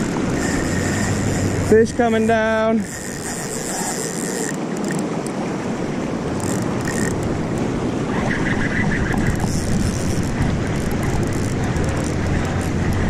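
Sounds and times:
fishing reel clicks: 0:00.0 - 0:05.4, 0:06.3 - 0:07.6, 0:09.2 - 0:13.0
river water rushing: 0:00.0 - 0:13.0.

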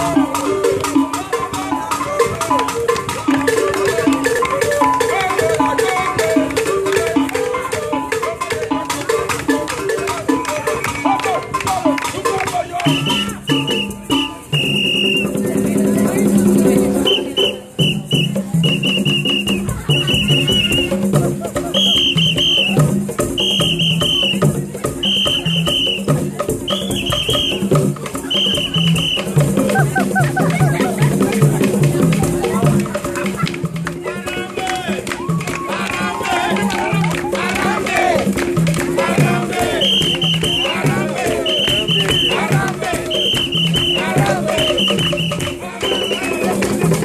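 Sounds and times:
people clapping: 0:00.0 - 0:14.2, 0:26.9 - 0:47.0
hand drumming: 0:00.0 - 0:47.0
voices singing a chant: 0:00.0 - 0:47.0
shrill whistle blasts: 0:12.9 - 0:15.3, 0:17.1 - 0:20.7, 0:21.8 - 0:22.8, 0:23.4 - 0:24.4, 0:25.0 - 0:26.1, 0:26.7 - 0:27.6, 0:28.3 - 0:29.3, 0:39.8 - 0:40.8, 0:41.4 - 0:42.4, 0:43.1 - 0:46.4.

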